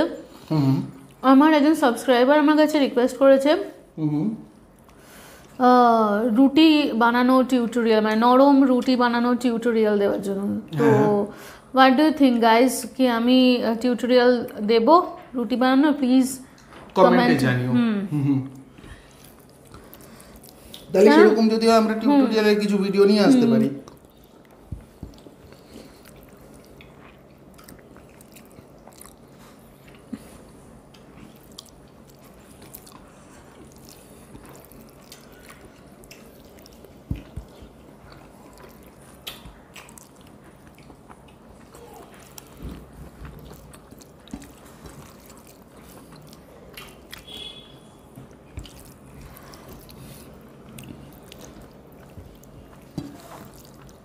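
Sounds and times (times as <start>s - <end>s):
quiet chewing: 4.7s - 5.6s, 18.4s - 20.9s, 23.8s - 54.0s.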